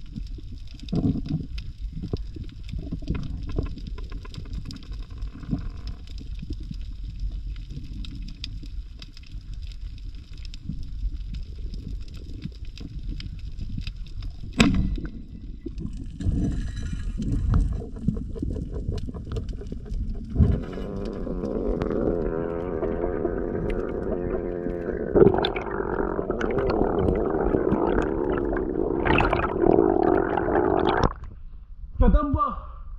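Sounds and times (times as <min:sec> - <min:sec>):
small crackling clicks: 0:00.0 - 0:31.3
low underwater rumble: 0:00.0 - 0:31.9
air bubbles rising: 0:10.6 - 0:31.4.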